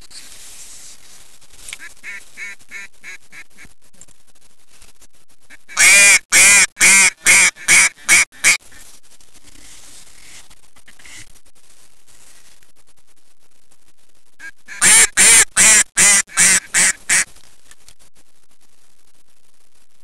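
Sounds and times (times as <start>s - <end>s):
duck quacking: 1.8s - 3.7s, 5.5s - 8.8s, 14.4s - 17.3s.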